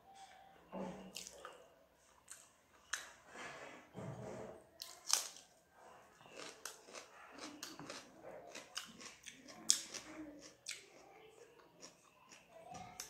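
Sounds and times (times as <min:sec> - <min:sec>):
person chewing and crunching food: 0:01.1 - 0:03.2, 0:04.8 - 0:13.0.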